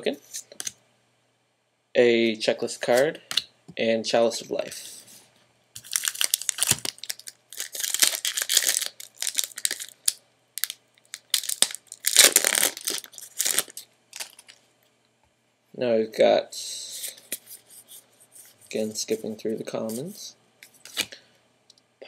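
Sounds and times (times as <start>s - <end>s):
foil wrapper crinkling and tearing: 5.8s - 14.6s.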